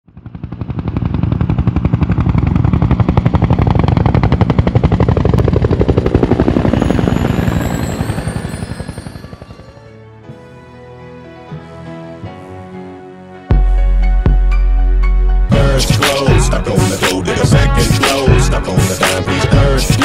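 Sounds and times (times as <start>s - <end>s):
thin rising high tones: 6.4s - 10.0s.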